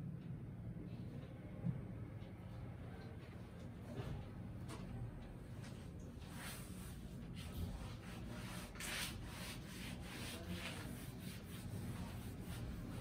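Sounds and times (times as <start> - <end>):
chalkboard being wiped: 6.2 - 13.0.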